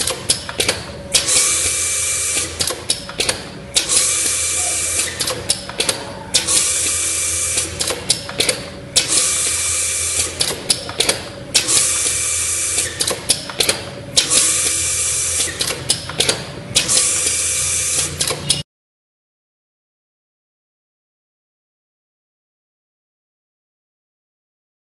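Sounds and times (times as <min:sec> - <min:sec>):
valve clicks and knocks: 0:02.4 - 0:04.3, 0:05.2 - 0:06.7, 0:07.5 - 0:09.2, 0:10.4 - 0:11.8
compressed air hiss: 0:09.1 - 0:10.4.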